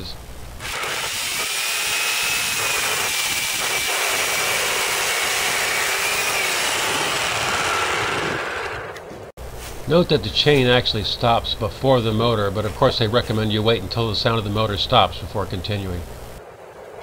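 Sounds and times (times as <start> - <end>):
electric chainsaw motor whine: 0.6 - 9.0.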